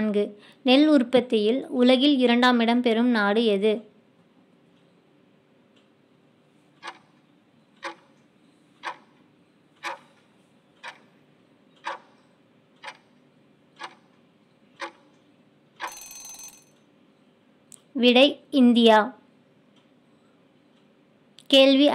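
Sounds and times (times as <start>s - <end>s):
countdown timer ticks: 6.8s - 7.2s, 7.8s - 8.2s, 8.8s - 9.2s, 9.8s - 10.2s, 10.8s - 11.2s, 11.8s - 13.2s, 13.8s - 14.1s, 14.8s - 15.1s, 15.8s - 16.5s.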